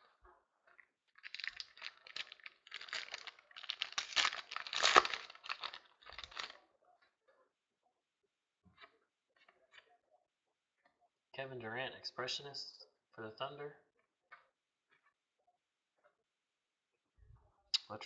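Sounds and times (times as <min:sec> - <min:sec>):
plastic wrapping crinkling and tearing: 0:01.2 - 0:06.6.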